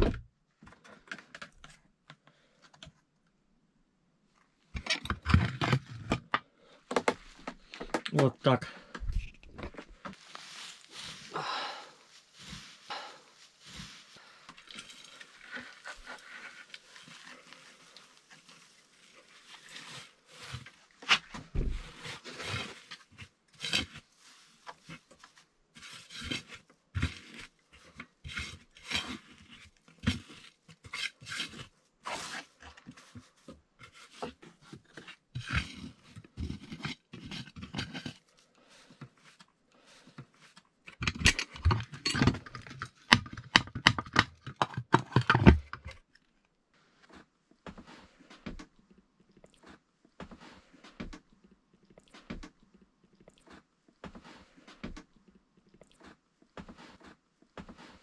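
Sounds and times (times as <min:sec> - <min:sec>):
wood shavings rustling: 0:10.2 - 0:21.0
knocks and scrapes: 0:13.6 - 0:46.0.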